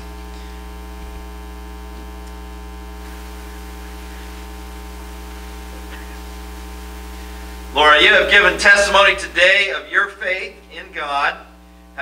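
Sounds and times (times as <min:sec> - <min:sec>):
electrical mains hum: 0:00.0 - 0:12.0
faint hiss: 0:02.2 - 0:10.7.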